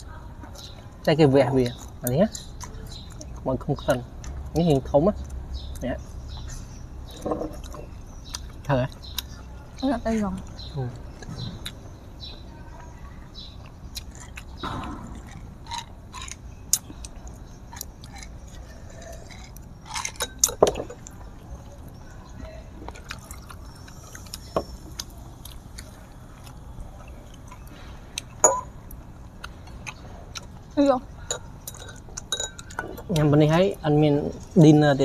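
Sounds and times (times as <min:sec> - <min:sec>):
chewing: 0:01.6 - 0:33.3
drinking: 0:10.4 - 0:29.0, 0:29.7 - 0:33.3.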